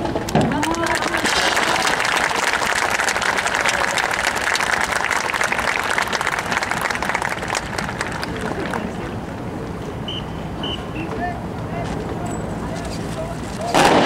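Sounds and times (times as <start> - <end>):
large audience applauding: 0.3 - 9.2.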